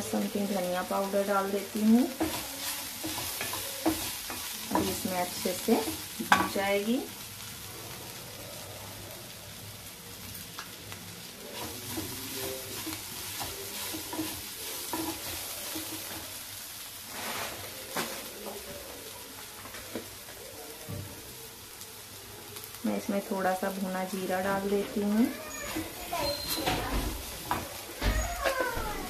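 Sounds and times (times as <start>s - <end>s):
vegetables sizzling in oil: 0.0s - 29.0s
spatula scraping pan: 2.0s - 6.8s, 11.4s - 16.4s, 24.6s - 28.8s.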